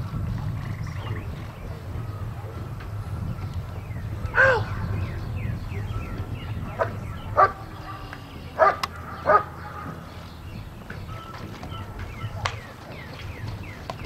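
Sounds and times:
dog barking: 6.7 - 10.1.

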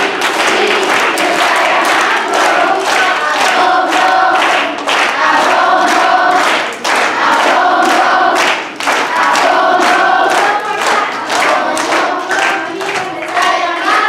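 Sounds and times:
children singing in unison: 0.0 - 14.0.

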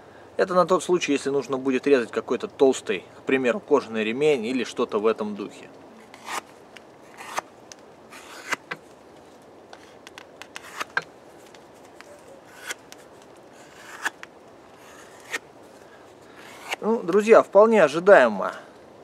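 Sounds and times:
blade scraping through leather: 6.1 - 6.5, 7.1 - 7.4, 8.1 - 8.8, 9.8 - 11.0, 11.8 - 14.2, 14.8 - 15.4, 16.4 - 16.9.

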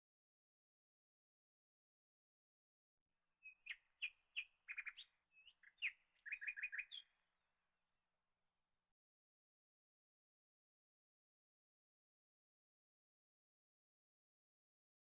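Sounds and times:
small bird chirping and trilling: 3.4 - 7.1.

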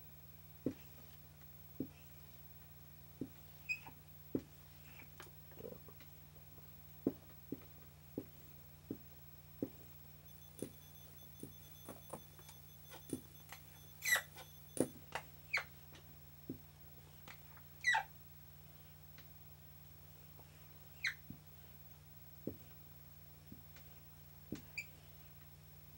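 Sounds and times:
low steady hum: 0.0 - 25.9
marker squeaking on a whiteboard: 3.6 - 4.0, 10.4 - 14.9, 17.8 - 18.1, 21.0 - 21.2.

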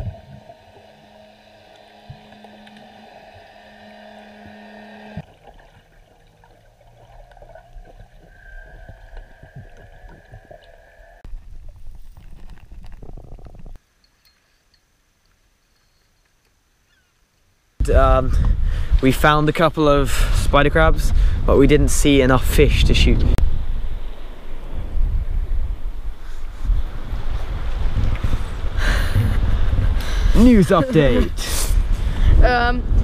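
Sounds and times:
steady hum of fixed tones: 0.0 - 11.2
low underwater noise: 0.0 - 14.1.

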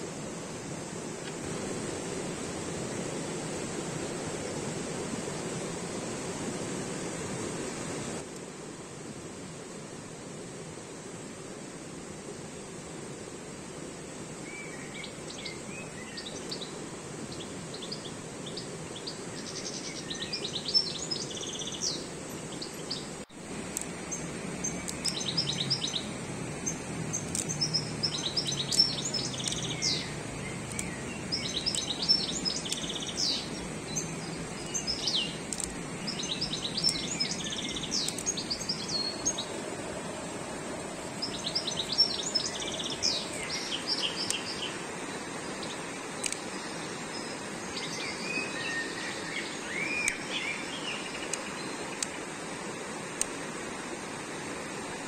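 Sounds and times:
rushing mountain stream: 0.0 - 55.0
songbirds twittering: 14.3 - 54.8.

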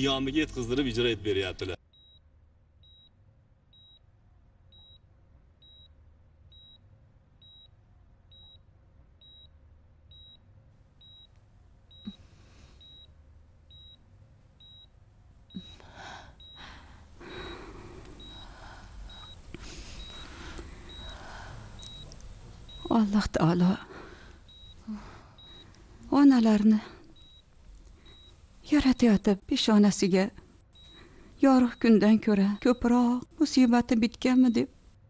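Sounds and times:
patient monitor beeping: 10.1 - 10.4, 11.0 - 35.0.

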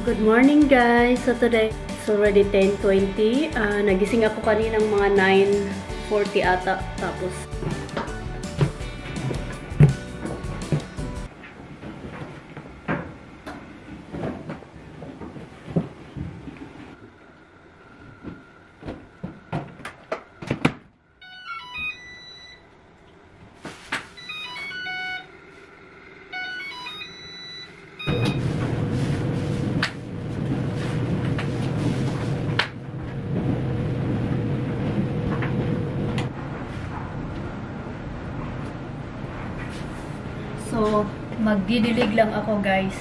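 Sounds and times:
washing machine running: 0.0 - 43.0
clunks of laundry handling: 7.5 - 11.0
electronic beeps: 21.2 - 22.7, 24.2 - 25.3, 26.3 - 28.5.

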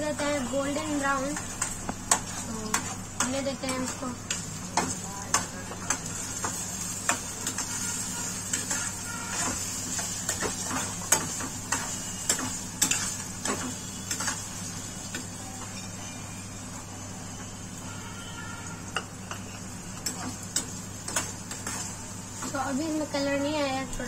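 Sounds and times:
onions sizzling in hot oil: 0.0 - 24.0
spatula scraping a pan: 5.8 - 14.4.

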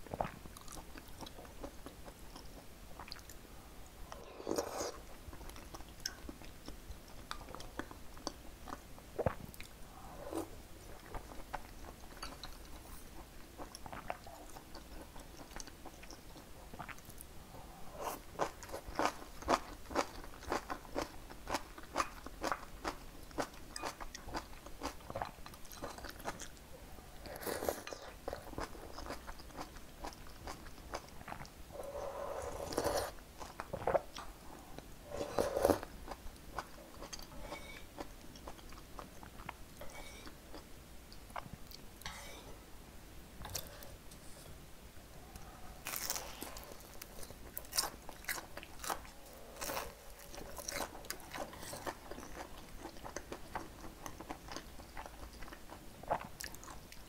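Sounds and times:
close eating and chewing: 0.0 - 42.6, 45.2 - 57.0
food crunching: 45.8 - 57.0.

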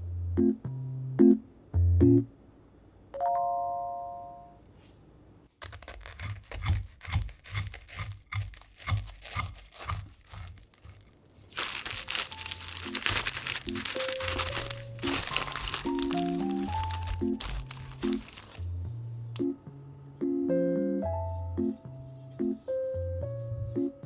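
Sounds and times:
plastic bag crinkling: 7.2 - 18.7
light background music: 11.6 - 24.0.

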